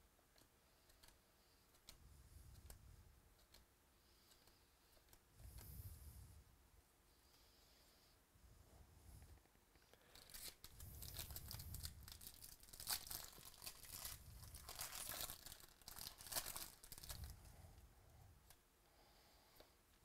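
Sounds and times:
foil wrapper tearing and crinkling: 10.2s - 17.3s.

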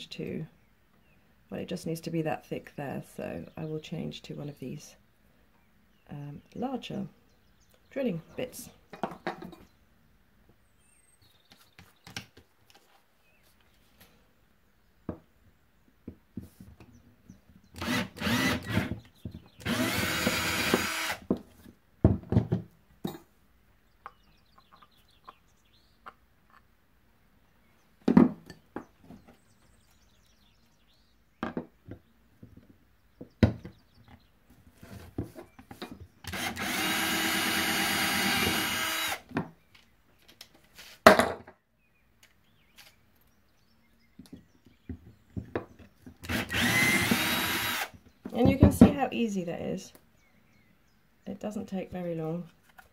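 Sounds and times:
cordless drill boring resin: 17.8s - 19.0s, 19.6s - 21.2s, 36.3s - 39.2s, 46.2s - 48.0s.

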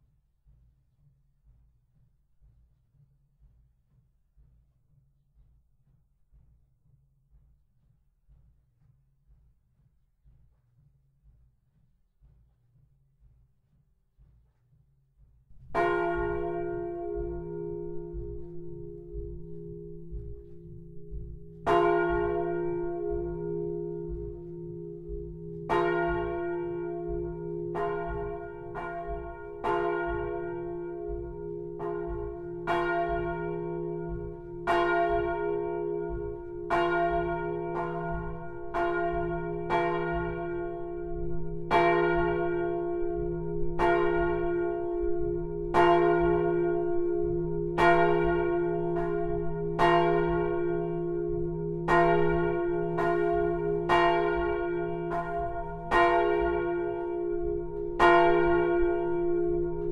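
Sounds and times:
steady low hum: 15.5s - 59.9s
church bell ringing: 15.6s - 59.9s.

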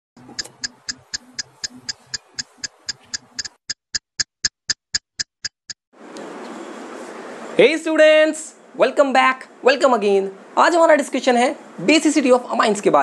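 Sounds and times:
evenly spaced ticks: 0.2s - 5.9s.

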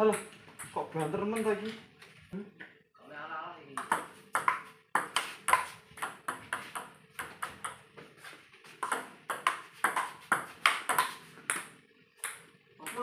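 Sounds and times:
ping-pong ball clicking: 3.8s - 7.8s, 8.8s - 13.0s.

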